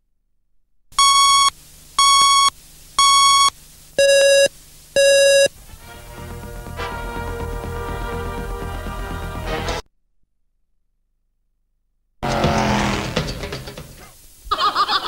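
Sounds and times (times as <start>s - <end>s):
electronic countdown beeps: 1.0s - 5.5s
music: 5.6s - 9.8s.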